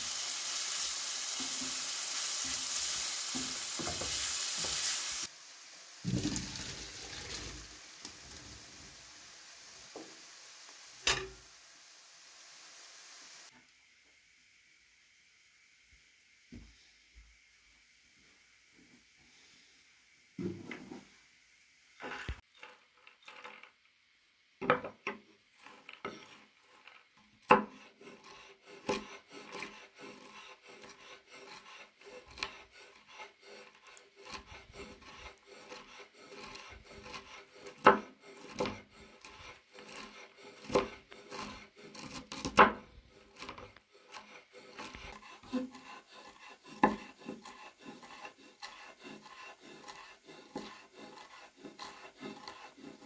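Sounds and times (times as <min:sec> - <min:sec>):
knife chopping nuts: 0:27.4 - 0:53.0.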